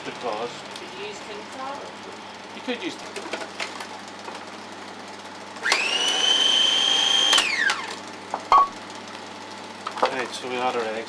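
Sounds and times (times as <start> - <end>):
food processor motor whining: 5.6 - 8.0.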